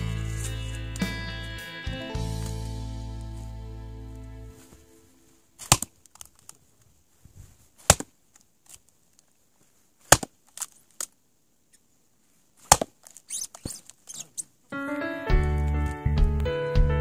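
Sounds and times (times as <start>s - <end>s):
axe chopping firewood: 5.6s - 6.0s, 7.8s - 8.1s, 10.1s - 10.4s, 12.6s - 13.0s.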